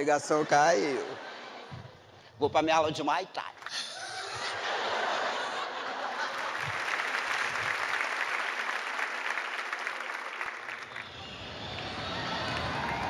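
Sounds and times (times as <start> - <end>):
audience applauding: 6.0 - 13.0.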